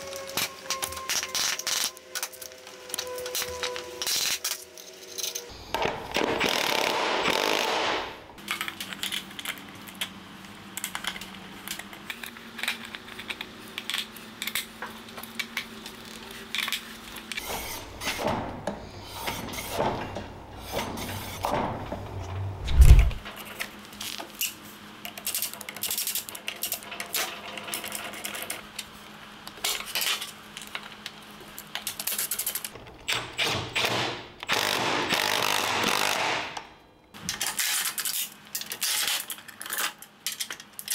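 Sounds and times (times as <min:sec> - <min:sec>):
tools and metal parts clanking: 0:00.0 - 0:05.6, 0:25.2 - 0:28.7
loud low thump: 0:22.6 - 0:23.2
impact wrench running in bursts: 0:34.5 - 0:36.4.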